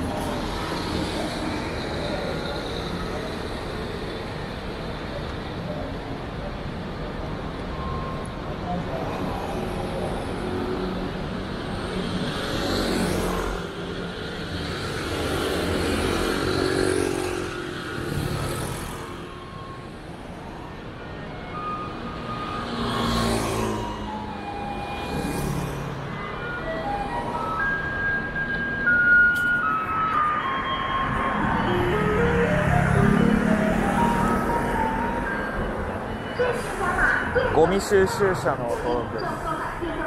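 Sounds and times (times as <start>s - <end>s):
cars and scooters driving past: 0.0s - 40.0s
steady traffic noise: 0.0s - 40.0s
faint garbage truck tune: 18.4s - 22.9s, 23.7s - 37.6s.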